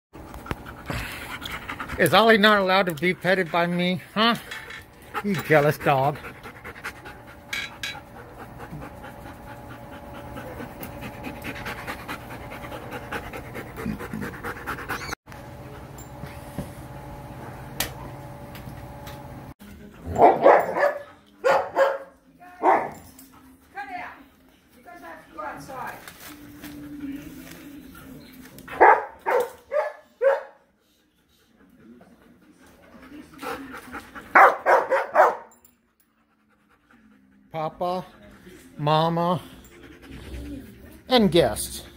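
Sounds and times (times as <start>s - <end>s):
dog panting: 0.2s - 15.2s, 30.3s - 41.9s
dogs barking: 20.0s - 23.1s, 28.7s - 30.7s, 34.3s - 35.6s.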